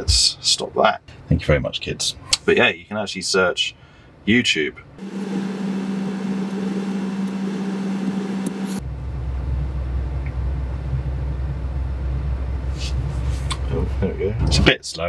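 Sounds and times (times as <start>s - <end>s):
van cabin hum: 5.0s - 13.6s
deep low engine rumble: 5.2s - 14.4s.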